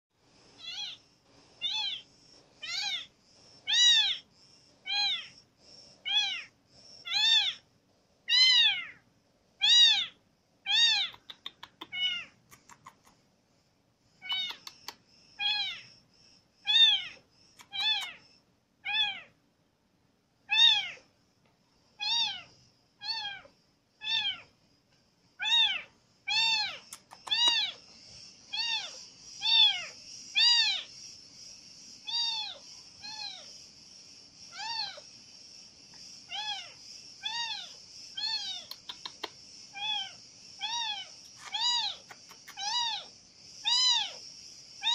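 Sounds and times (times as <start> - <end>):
kitten meowing: 7.1 - 7.6, 8.3 - 9.0, 9.6 - 12.3, 16.7 - 18.2, 25.4 - 27.8, 39.8 - 43.0.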